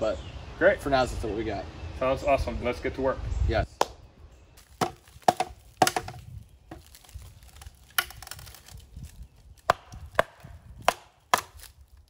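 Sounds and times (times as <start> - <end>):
hammer knocking on wooden post: 4.8 - 6.2.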